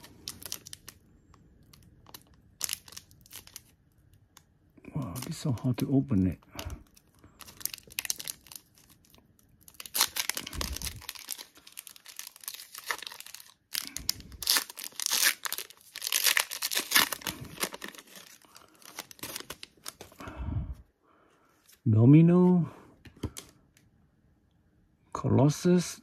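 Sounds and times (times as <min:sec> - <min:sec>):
wrapper tearing and crinkling: 0:00.0 - 0:04.2, 0:04.9 - 0:20.2.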